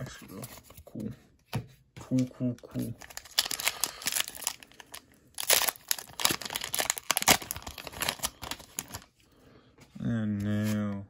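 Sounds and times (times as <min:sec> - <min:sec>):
foil wrappers crinkling: 0:02.8 - 0:09.1.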